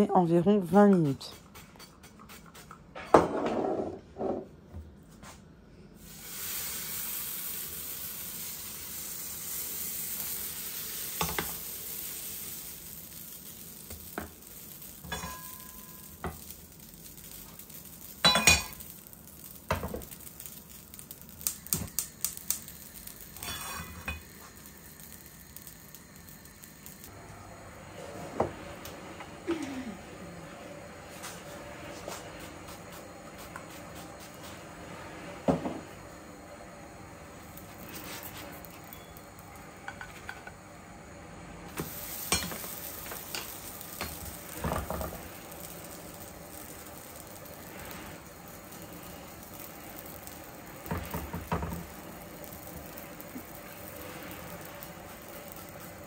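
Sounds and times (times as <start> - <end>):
batter sizzling in a pan: 6.0 - 56.0
pans and utensils clinking: 15.0 - 16.4, 18.2 - 18.9.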